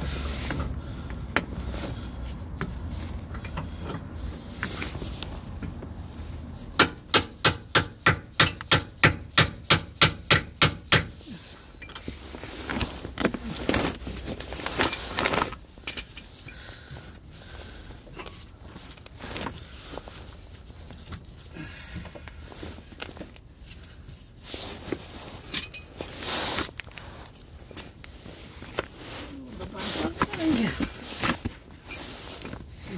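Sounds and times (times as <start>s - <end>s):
fabric rustling on microphone: 12.1s - 15.8s, 22.4s - 32.9s
scraping and rubbing: 24.4s - 32.9s.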